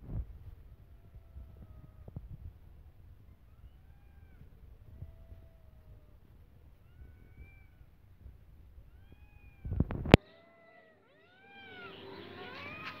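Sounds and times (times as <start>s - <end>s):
cats meowing: 0.4s - 13.0s.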